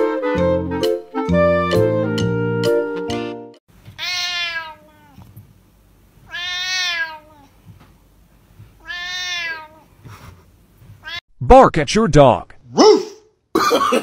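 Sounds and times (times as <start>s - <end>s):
cat meowing loudly: 3.9s - 5.3s, 6.2s - 7.5s, 8.8s - 9.9s.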